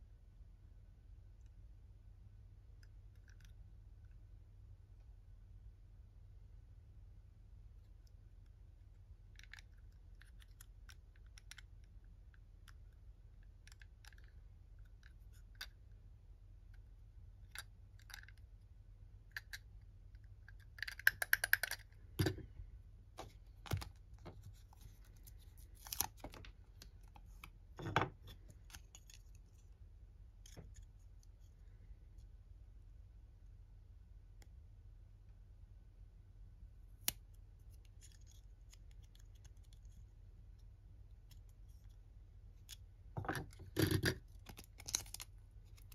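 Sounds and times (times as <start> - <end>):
plastic toy parts clicking: 20.5 - 22.4.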